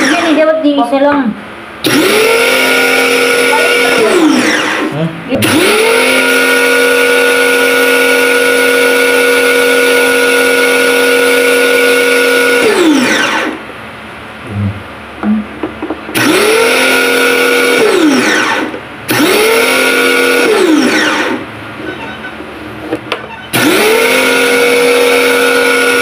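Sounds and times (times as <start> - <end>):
electric pressure washer running: 0.0 - 0.5, 1.8 - 13.6, 16.1 - 21.4, 23.5 - 26.0.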